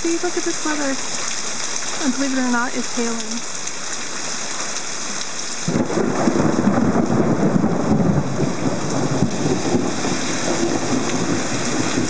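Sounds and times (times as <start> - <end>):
heavy rain and hail: 0.0 - 12.0
crackling thunder rumble: 5.6 - 12.0.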